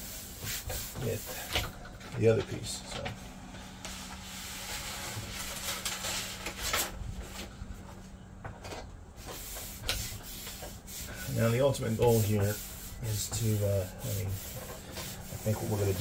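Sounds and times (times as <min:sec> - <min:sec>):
hands rubbing vinyl: 0:00.0 - 0:01.6, 0:09.2 - 0:16.0
vinyl sheet rustling: 0:00.3 - 0:08.1, 0:09.2 - 0:16.0.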